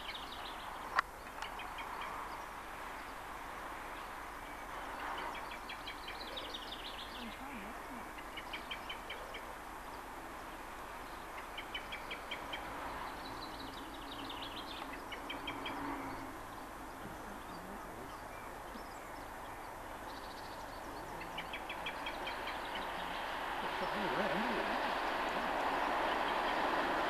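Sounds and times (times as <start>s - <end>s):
birds trilling: 11.1s - 26.8s
distant steam train rumble: 20.8s - 27.0s.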